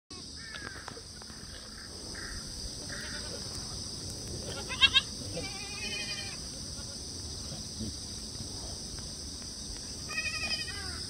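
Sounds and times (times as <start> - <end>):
goats bleating: 2.8 - 3.6, 4.4 - 7.0, 10.1 - 11.0.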